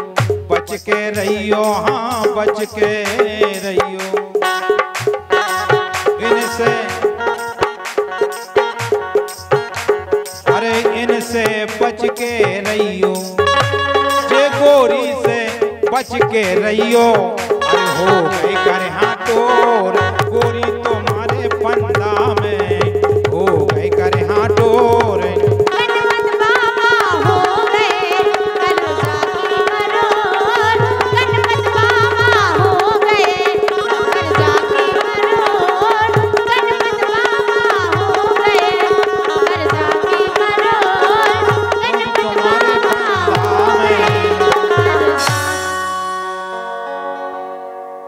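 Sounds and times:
harmonium and keyboard melody: 0.0 - 48.0
held drone note: 41.2 - 48.0.

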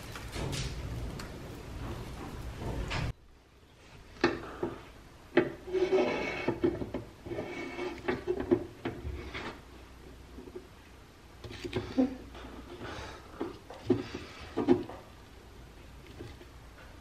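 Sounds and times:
metal rod scraping and squeaking: 5.4 - 9.6.

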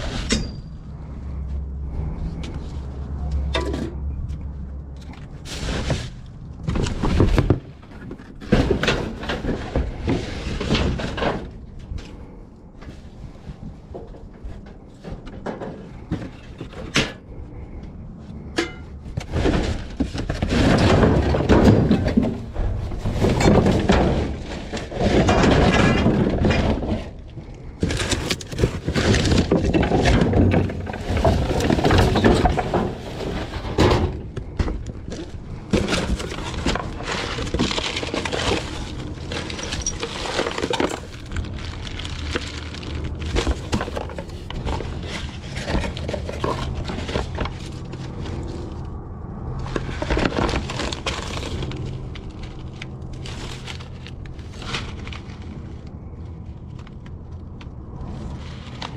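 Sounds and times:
junk knocking and rustling: 1.9 - 55.5.

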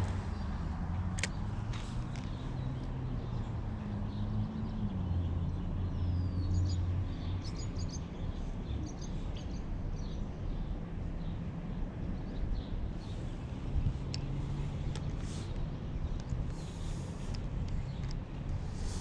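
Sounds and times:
low traffic hum: 0.0 - 19.0
small birds chirping: 0.0 - 19.0.

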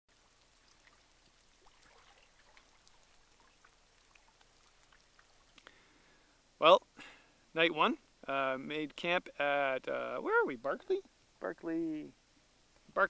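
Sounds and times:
water dripping and splashing: 0.1 - 5.9.

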